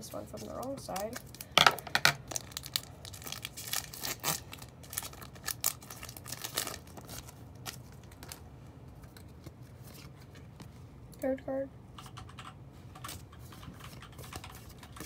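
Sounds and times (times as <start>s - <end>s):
foil wrapper tearing and crinkling: 2.2s - 8.4s.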